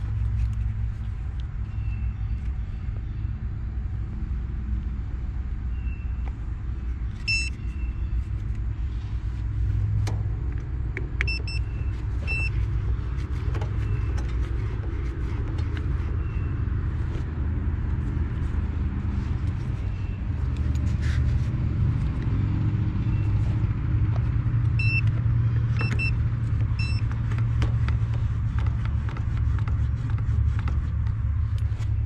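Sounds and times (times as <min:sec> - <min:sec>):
short electronic beeps: 0:07.2 - 0:08.0, 0:11.3 - 0:12.6, 0:24.8 - 0:25.1, 0:25.8 - 0:26.2, 0:26.8 - 0:27.0.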